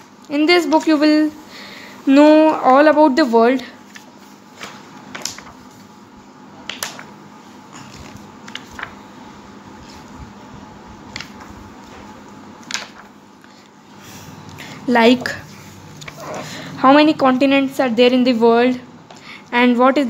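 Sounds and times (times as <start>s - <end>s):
pages being turned: 3.8s - 6.0s, 6.6s - 7.2s, 7.8s - 10.2s, 11.0s - 13.8s, 15.5s - 16.4s.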